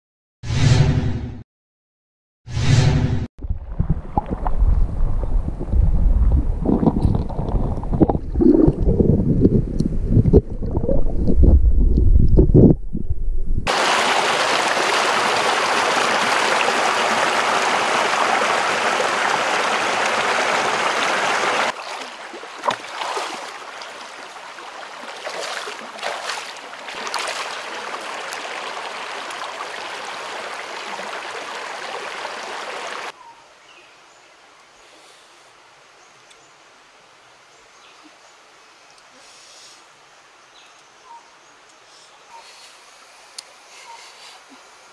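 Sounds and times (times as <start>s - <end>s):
underwater rumbling and sloshing: 3.4s - 13.7s
light water splashes: 13.7s - 33.2s
stream water rushing: 13.7s - 33.2s.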